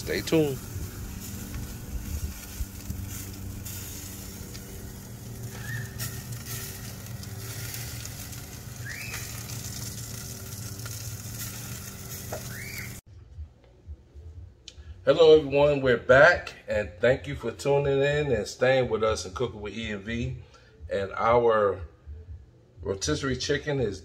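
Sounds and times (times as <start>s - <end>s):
chicken sizzling over fire: 0.0s - 13.1s
low hum: 0.0s - 15.1s
short rising chirps: 8.7s - 9.6s, 12.4s - 13.0s.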